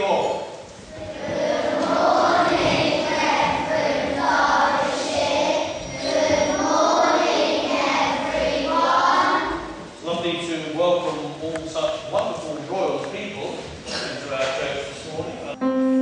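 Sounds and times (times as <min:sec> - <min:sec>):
congregation singing in unison: 0:00.9 - 0:09.9.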